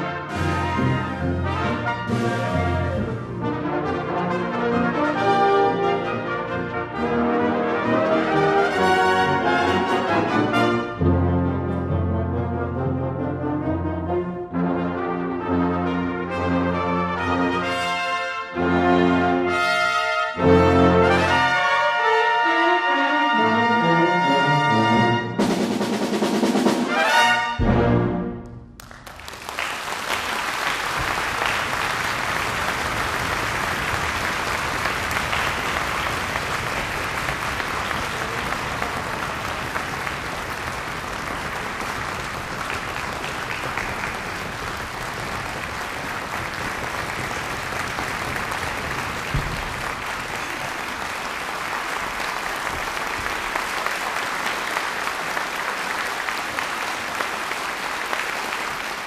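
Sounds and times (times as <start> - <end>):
audience applauding: 0.3 - 3.2, 28.4 - 59.0.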